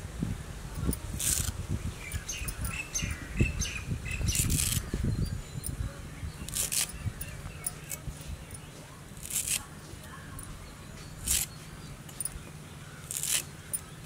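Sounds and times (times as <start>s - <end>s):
knife slicing leafy greens: 0.9s - 1.6s, 4.3s - 5.0s, 6.4s - 8.4s, 9.1s - 9.7s, 11.0s - 12.4s, 13.0s - 13.6s
bird chirping: 1.8s - 14.0s.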